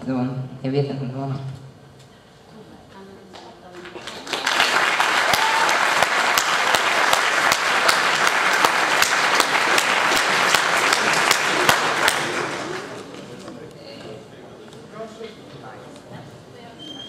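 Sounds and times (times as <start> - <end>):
audience applauding: 3.8 - 13.4.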